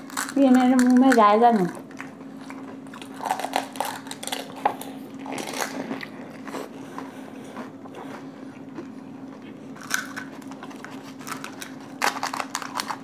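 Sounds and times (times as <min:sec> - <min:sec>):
crisp shells crunching in mouth: 0:00.0 - 0:06.4, 0:09.7 - 0:13.0
steady low hum: 0:00.0 - 0:13.0
wet chewing: 0:00.0 - 0:13.0.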